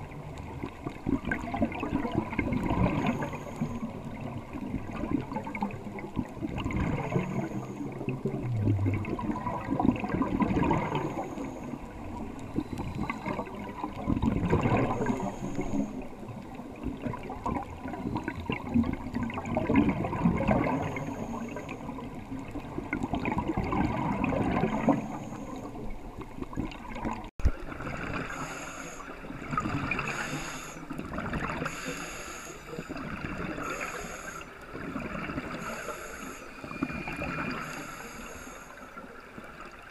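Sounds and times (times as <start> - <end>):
underwater regulator breathing bubbles: 6.5 - 16.0, 19.5 - 21.9, 28.0 - 38.8.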